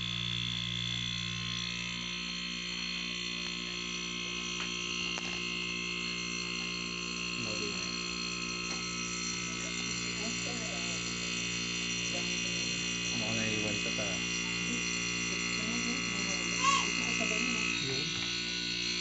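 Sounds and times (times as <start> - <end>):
electric motor humming and whining: 0.0 - 19.0.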